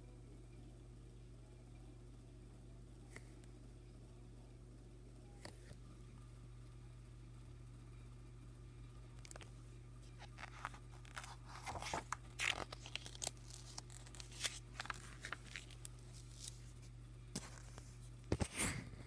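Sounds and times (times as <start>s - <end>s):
paper pages rustling: 9.2s - 18.8s.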